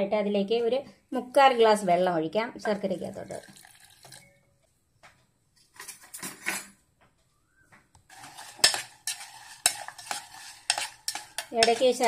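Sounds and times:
spoon stirring in saucepan: 0:08.0 - 0:12.0.

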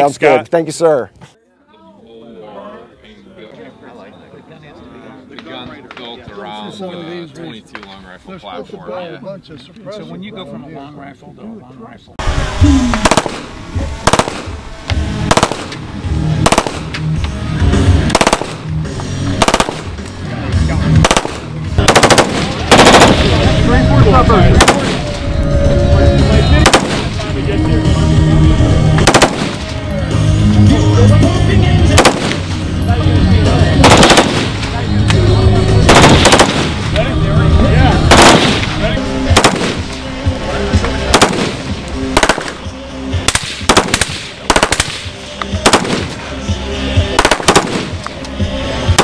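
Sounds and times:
background music: 0:12.2 - 0:49.0
automatic gunfire bursts: 0:13.0 - 0:14.5, 0:15.3 - 0:15.7, 0:16.4 - 0:16.8, 0:18.1 - 0:18.6, 0:19.4 - 0:19.9, 0:21.0 - 0:23.6, 0:24.6 - 0:25.1, 0:26.6 - 0:27.1, 0:29.0 - 0:29.7, 0:31.9 - 0:32.5, 0:33.8 - 0:34.6, 0:35.9 - 0:36.8, 0:38.1 - 0:38.6, 0:39.3 - 0:39.9, 0:41.1 - 0:41.6, 0:42.2 - 0:42.6, 0:43.3 - 0:46.2, 0:47.2 - 0:48.0
automatic rifle bursts: 0:21.0 - 0:23.3, 0:33.8 - 0:34.6, 0:35.9 - 0:36.8, 0:38.1 - 0:38.6.

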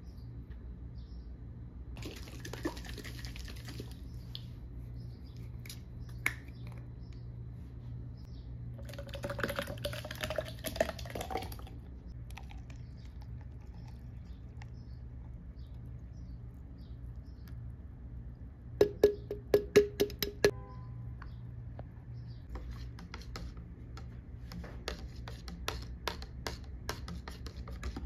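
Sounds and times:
milk pouring into cup: 0:02.0 - 0:04.0, 0:08.8 - 0:14.8.

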